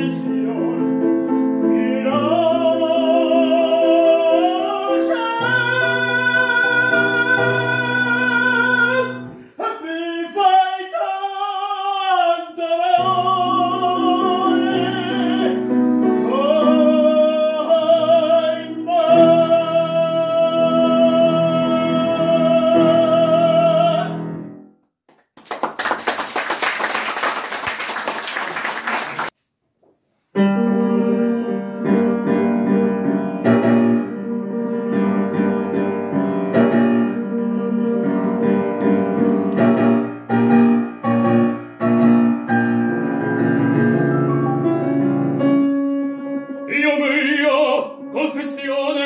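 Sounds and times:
man singing opera: 0.0s - 24.4s, 30.8s - 32.9s, 46.1s - 49.0s
grand piano: 0.0s - 24.7s, 30.3s - 49.0s
audience applause: 25.1s - 29.3s.

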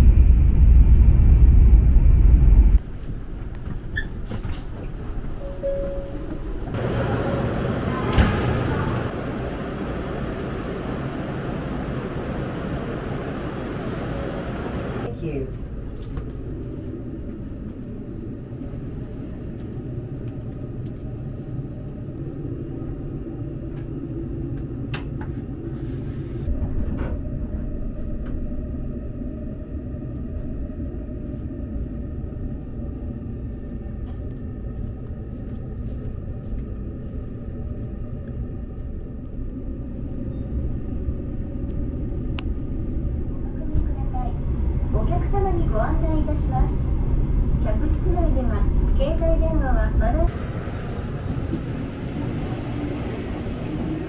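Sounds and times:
train rumbling on rails: 0.0s - 54.0s.

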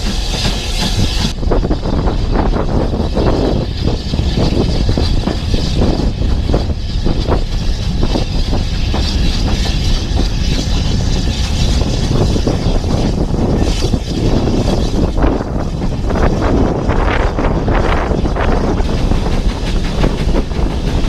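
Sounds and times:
train carriages rumbling on track: 0.0s - 21.0s
wind buffeting microphone: 0.0s - 21.0s.

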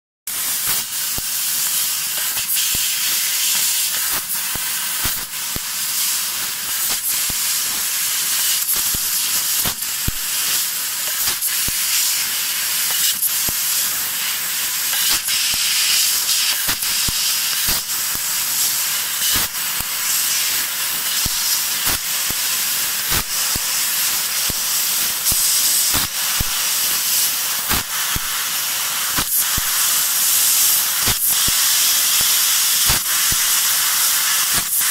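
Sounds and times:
laser cutter hissing: 0.3s - 34.9s.

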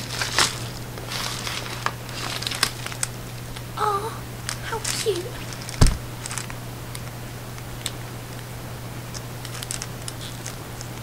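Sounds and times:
cellophane bag crinkling: 0.0s - 3.7s, 4.5s - 7.1s, 9.4s - 10.6s.

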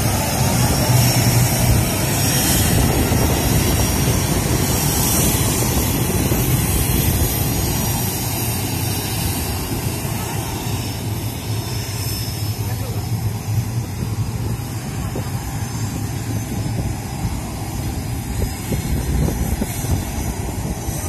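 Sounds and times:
jet engine roar: 0.0s - 21.0s.

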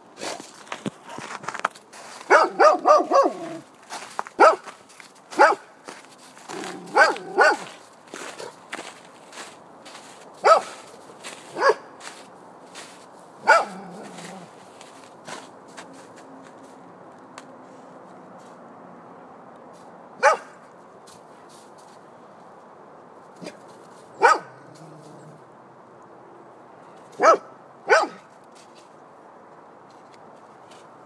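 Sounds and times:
dog barking: 2.3s - 3.6s, 4.4s - 4.7s, 5.4s - 5.7s, 6.6s - 8.6s, 10.4s - 10.9s, 11.5s - 11.9s, 13.4s - 14.4s, 20.2s - 20.6s, 24.2s - 24.6s, 27.2s - 28.3s.

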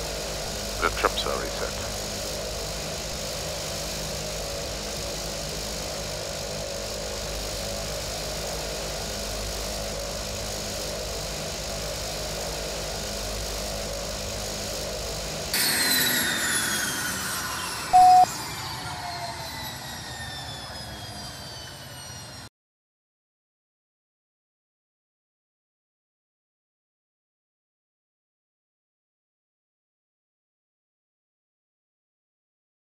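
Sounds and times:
turbine whine spooling down: 0.0s - 22.5s
turboprop engine running: 0.0s - 22.5s.

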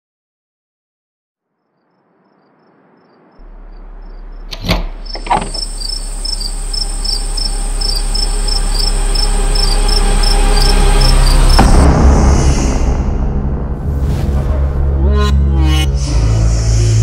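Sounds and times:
crickets chirping: 1.4s - 11.8s
low drone: 3.4s - 17.0s.

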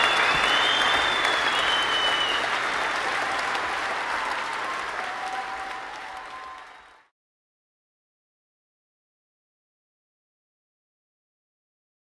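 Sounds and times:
high whistles: 0.0s - 2.6s
crowd applauding: 0.0s - 7.1s.

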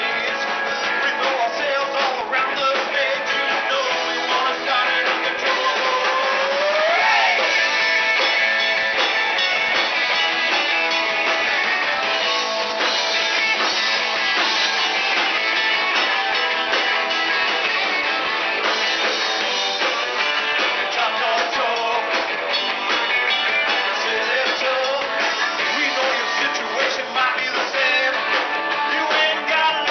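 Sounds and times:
live rock band playing: 0.0s - 29.9s
drum hits: 0.1s - 24.0s.

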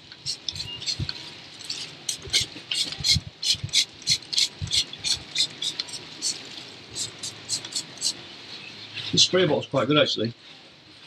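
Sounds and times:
spray bottle squirts: 0.2s - 6.4s.

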